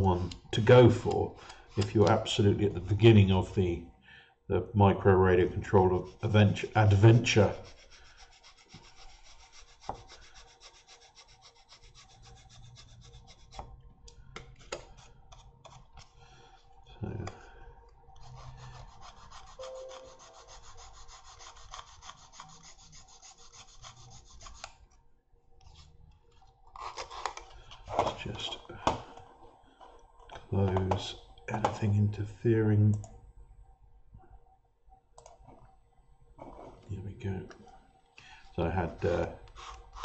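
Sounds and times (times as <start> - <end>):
file rasping on foam: 7.5 - 13.6, 18.2 - 24.7.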